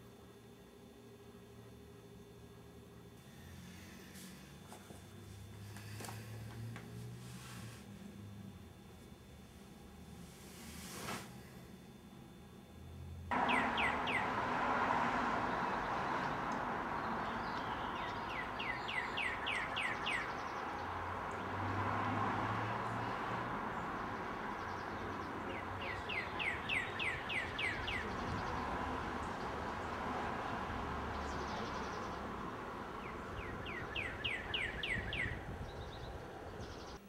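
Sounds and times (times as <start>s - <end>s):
distant traffic hum: 1.1s - 37.0s
bird chirping: 13.3s - 14.4s, 15.5s - 21.5s, 23.8s - 30.0s, 33.0s - 37.0s.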